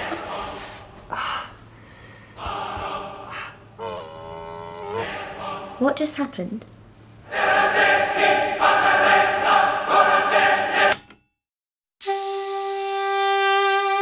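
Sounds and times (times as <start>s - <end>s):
choir-like film score chords: 0.0s - 1.1s, 1.8s - 6.1s, 7.1s - 11.1s.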